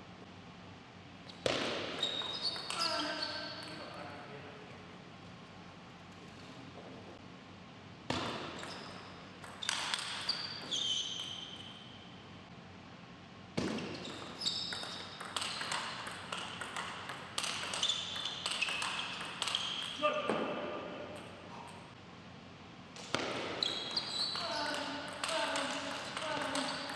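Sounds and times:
shoe squeaks: 1.3s - 3.9s, 8.4s - 12.1s, 13.8s - 15.7s, 17.6s - 20.0s, 23.5s - 25.1s, 26.5s - 26.9s
table tennis ball clicking: 14.6s - 20.0s.

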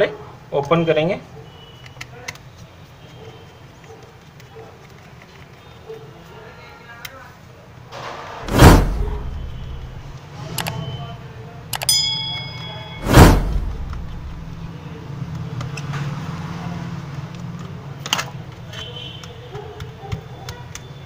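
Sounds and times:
brief brushing rushes: 8.4s - 10.2s, 13.0s - 14.7s
short metallic ting: 11.9s - 14.7s.

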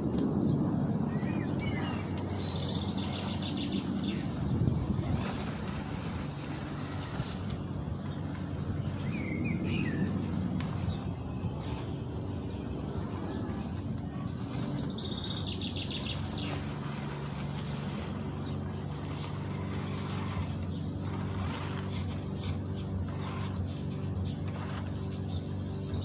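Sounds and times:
birds chirping: 0.4s - 26.0s
toy car motor whining: 12.9s - 15.4s, 16.2s - 25.9s.

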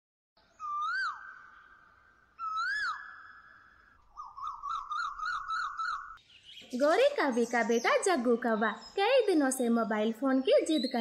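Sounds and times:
swooping whistles: 0.6s - 6.2s
warbling whistle: 0.6s - 6.2s.

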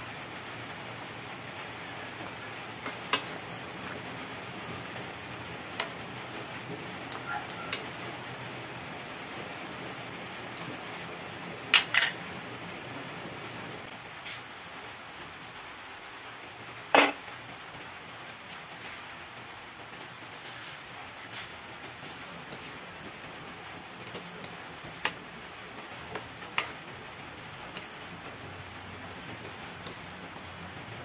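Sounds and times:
steady hiss: 0.0s - 31.0s.

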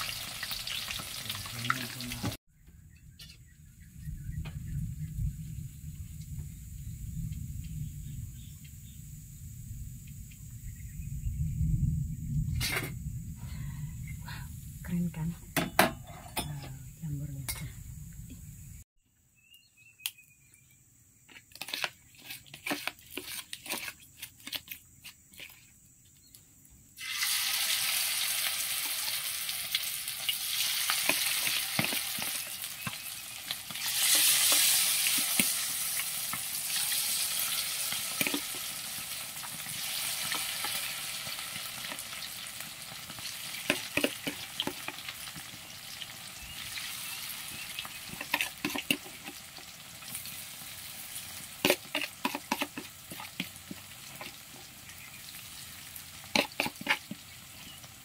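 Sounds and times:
crackles and pops of frying: 0.0s - 2.4s, 27.0s - 58.0s
deep-frying sizzle in oil: 0.0s - 2.4s, 27.0s - 58.0s.

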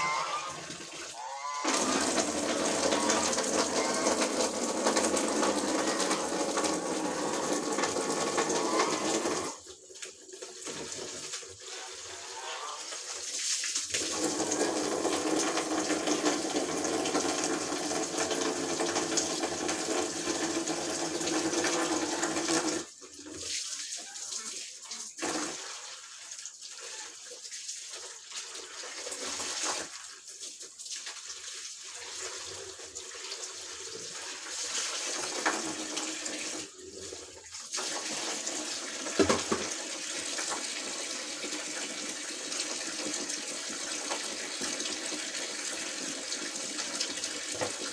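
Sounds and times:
tap water running into sink: 0.0s - 47.9s.

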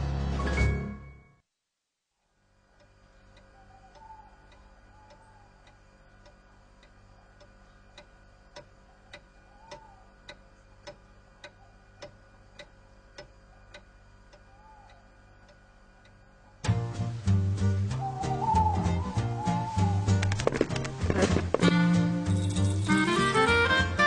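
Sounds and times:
faint steady hum: 1.4s - 24.0s
clock ticking: 2.8s - 16.2s.

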